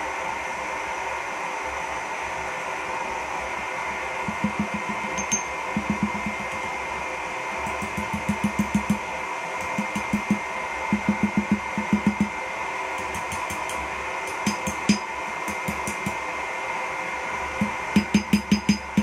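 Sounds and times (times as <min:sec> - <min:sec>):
forge blower rushing: 0:00.0 - 0:19.0
hammer striking steel on anvil: 0:04.3 - 0:06.8, 0:07.7 - 0:12.4, 0:13.0 - 0:16.2, 0:17.6 - 0:19.0.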